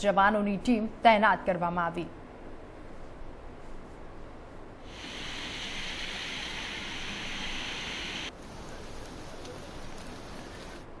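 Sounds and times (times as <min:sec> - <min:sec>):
falling rain hiss: 0:04.8 - 0:11.0
waterfall rushing: 0:04.9 - 0:08.3.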